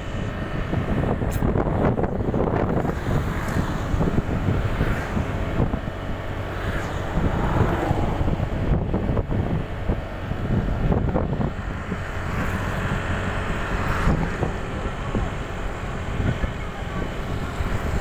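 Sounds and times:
road noise: 0:00.0 - 0:18.0
wind buffeting microphone: 0:00.0 - 0:18.0.

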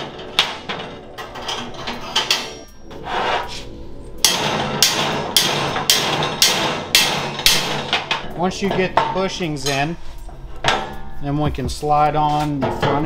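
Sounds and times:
mallet striking metal bolt: 0:04.2 - 0:09.2.

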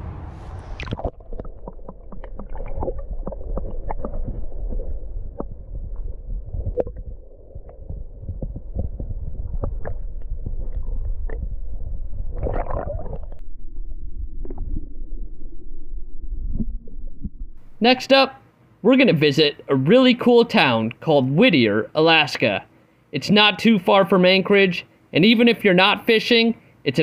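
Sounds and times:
muffled underwater stream rumble: 0:00.0 - 0:17.8.

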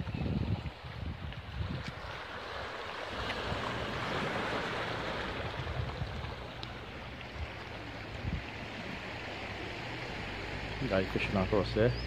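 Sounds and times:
wind rumble on microphone: 0:00.0 - 0:11.2
waves washing onto pebbly shore: 0:00.6 - 0:11.5.

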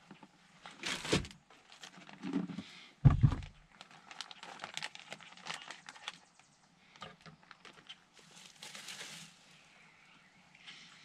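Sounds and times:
plastic packaging crinkling: 0:00.6 - 0:02.3, 0:03.2 - 0:06.4, 0:07.2 - 0:09.4
dull thump: 0:03.0 - 0:03.6.

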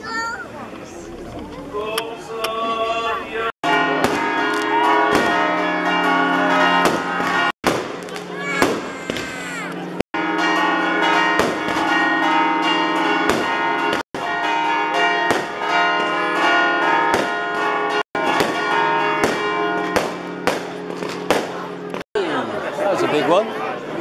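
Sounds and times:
church bells pealing: 0:03.6 - 0:22.5.

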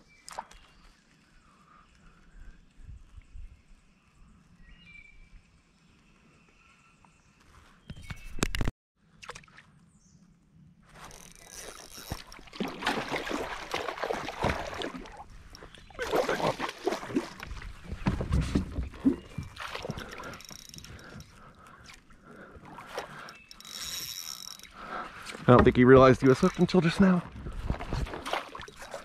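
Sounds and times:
water splashing beside a kayak: 0:11.0 - 0:29.0.

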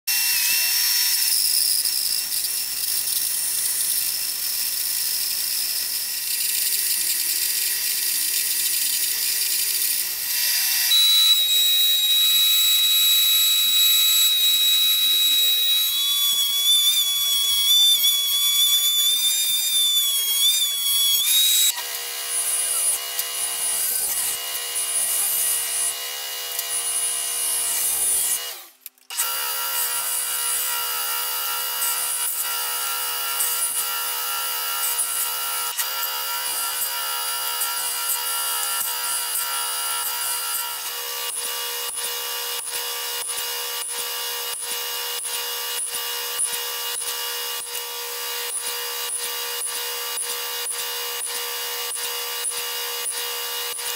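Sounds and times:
bandsaw cutting wood: 0:00.1 - 0:53.9
thickness planer high whine: 0:07.3 - 0:29.4.

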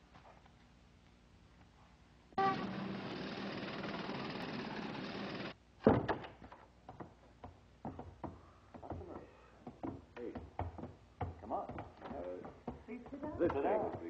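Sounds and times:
city traffic noise: 0:02.4 - 0:05.6
loud door thud: 0:05.8 - 0:06.4
knocks: 0:05.8 - 0:14.0.

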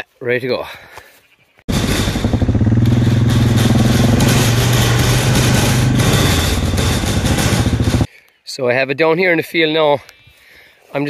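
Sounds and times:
quad bike engine running: 0:01.7 - 0:08.1.

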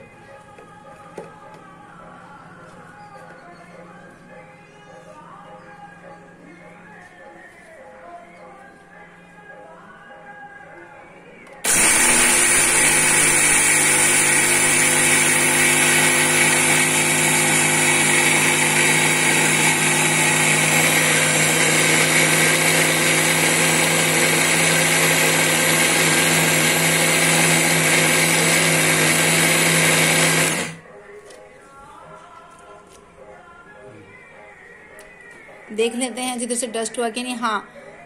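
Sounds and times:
mixer grinder running: 0:11.6 - 0:30.9.

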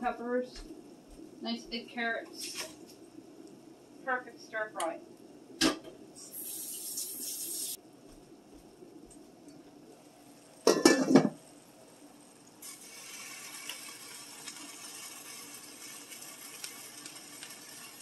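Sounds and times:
vegetables hissing on hot skillet: 0:02.4 - 0:02.9, 0:06.2 - 0:07.8, 0:12.4 - 0:18.0
pot lid clattering on skillet: 0:10.6 - 0:11.4.

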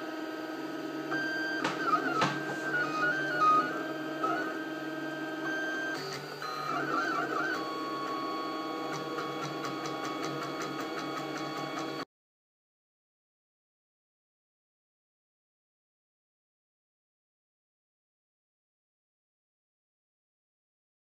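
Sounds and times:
stepper motors whining: 0:01.0 - 0:12.0.

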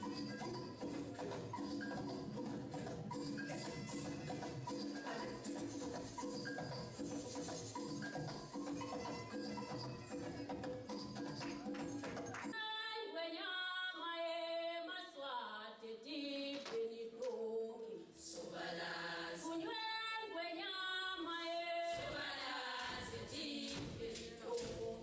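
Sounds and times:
women singing unaccompanied: 0:00.0 - 0:06.0, 0:12.5 - 0:25.0.

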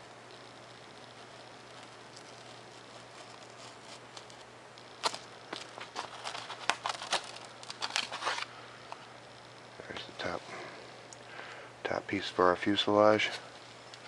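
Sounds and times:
foam sheet crackling: 0:01.7 - 0:08.5.

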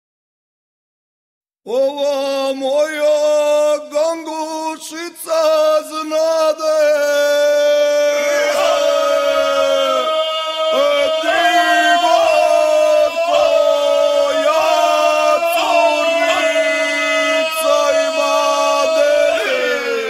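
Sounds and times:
men singing together: 0:06.9 - 0:20.0.

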